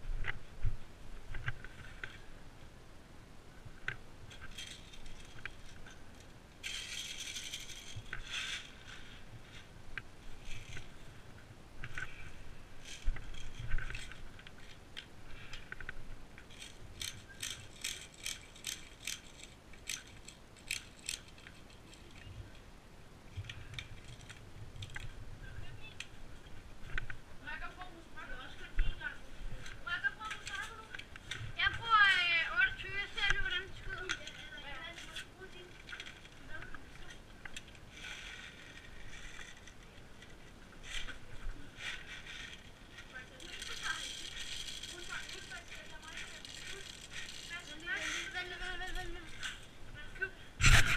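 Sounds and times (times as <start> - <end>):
rustling: 3.4 - 22.7, 23.3 - 50.9
small plastic clicks: 12.8 - 22.4, 41.8 - 49.7.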